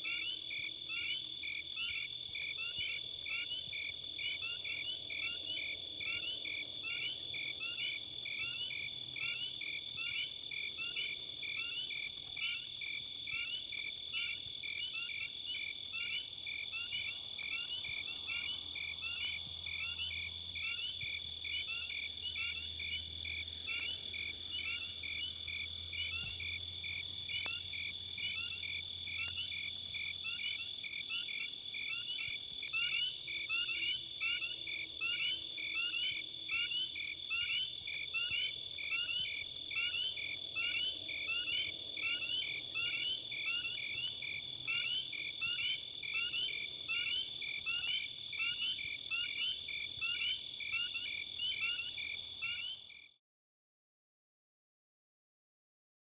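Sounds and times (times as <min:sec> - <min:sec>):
insects chirping: 0:00.0 - 0:53.2.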